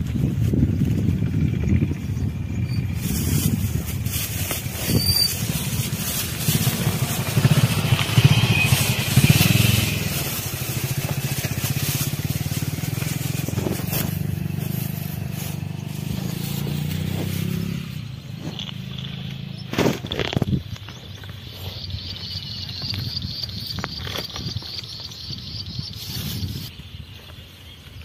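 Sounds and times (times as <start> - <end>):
engine running: 0.0 - 26.7
plastic bag rustling: 2.9 - 18.9.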